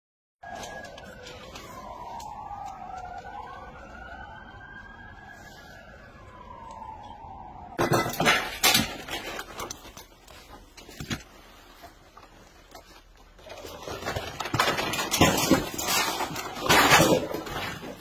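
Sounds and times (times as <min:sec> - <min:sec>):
debris clattering: 0:07.8 - 0:18.0
rubble scraping: 0:07.8 - 0:18.0.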